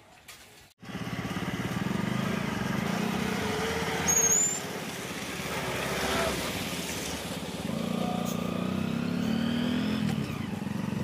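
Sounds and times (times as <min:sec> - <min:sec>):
short high squeak: 0:04.0 - 0:04.6.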